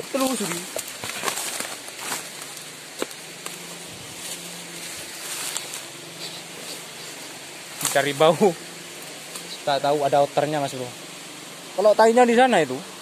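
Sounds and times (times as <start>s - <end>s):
footsteps crunching on dry leaves: 0.0s - 9.8s.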